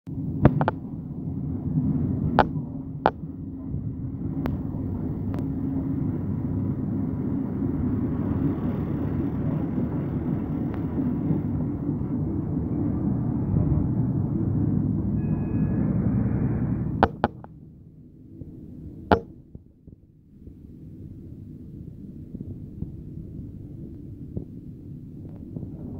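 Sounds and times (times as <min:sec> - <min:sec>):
quiet train hum: 0:00.1 - 0:25.9
train rumble inside carriage: 0:00.1 - 0:25.9
sharp clicks: 0:17.0 - 0:17.5.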